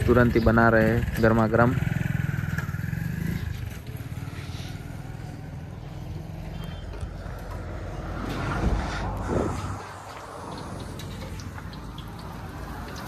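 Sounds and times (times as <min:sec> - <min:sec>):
traffic rumble: 0:00.0 - 0:13.0.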